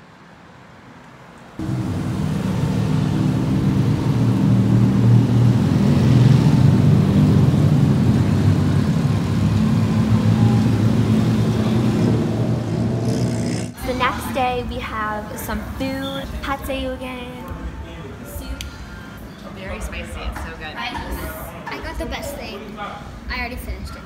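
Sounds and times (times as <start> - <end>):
auto rickshaw engines droning: 1.6 - 20.5.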